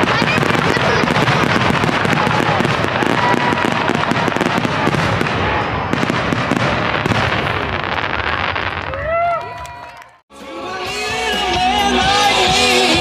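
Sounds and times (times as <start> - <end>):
fireworks bangs and crackles: 0.0 - 9.7.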